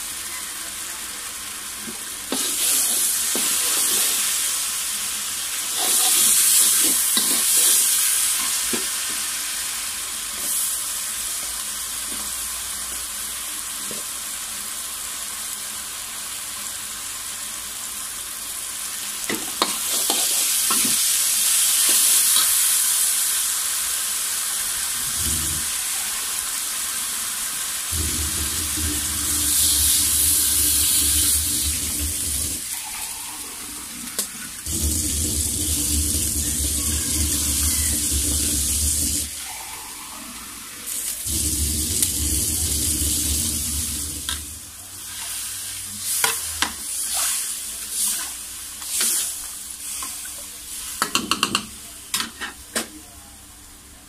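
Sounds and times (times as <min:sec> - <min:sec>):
vegetables sizzling in a wok: 0:00.0 - 0:54.0
low hum: 0:27.9 - 0:32.6.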